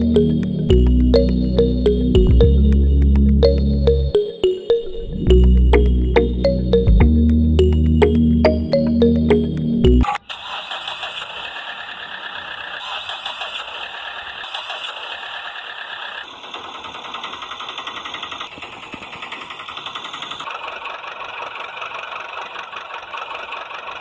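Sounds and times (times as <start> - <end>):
rattling motor running: 10.2 - 24.0.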